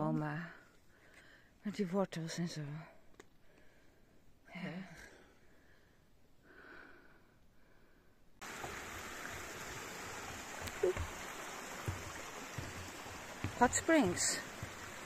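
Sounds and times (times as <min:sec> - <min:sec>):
creek flowing over rocks: 0:08.4 - 0:15.0
footsteps on wooden boardwalk: 0:08.4 - 0:15.0.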